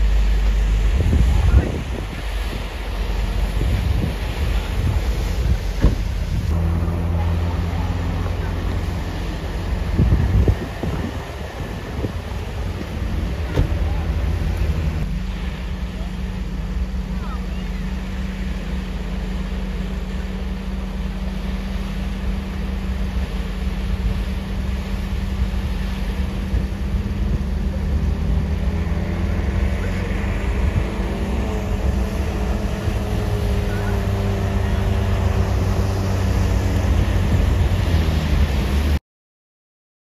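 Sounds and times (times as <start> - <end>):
wind noise: 0.0 - 15.6, 22.8 - 39.0
vehicle engine and road rumble: 0.0 - 39.0.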